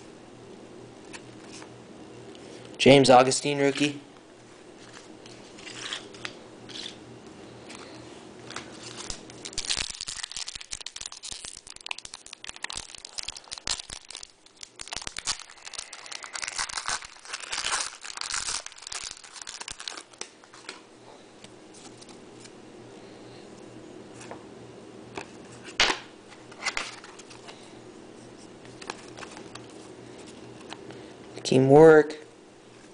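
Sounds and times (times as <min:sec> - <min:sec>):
foil wrappers tearing and crinkling: 0:08.5 - 0:20.7.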